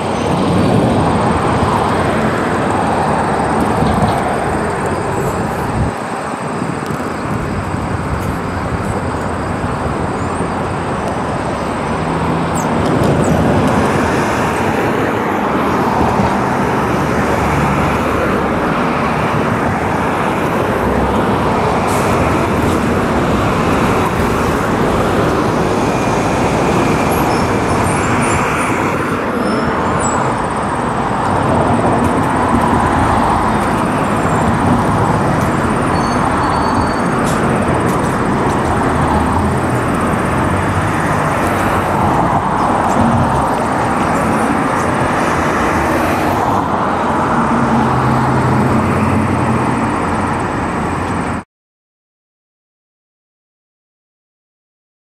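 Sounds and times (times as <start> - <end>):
road traffic rushing: 0.0 - 51.4.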